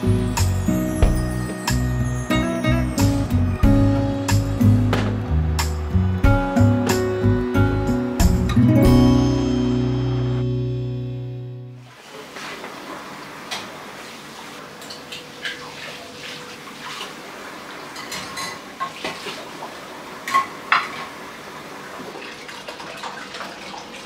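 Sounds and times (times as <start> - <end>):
dishes clinking in wire rack: 18.0 - 19.0.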